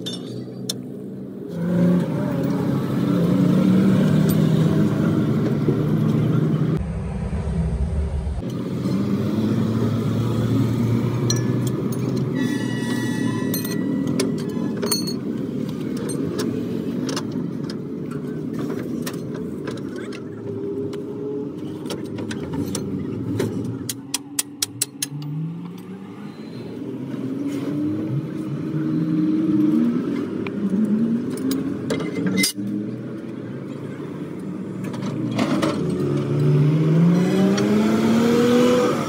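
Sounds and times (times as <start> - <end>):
vehicle engine revving: 1.5 - 11.2, 35.6 - 39.0.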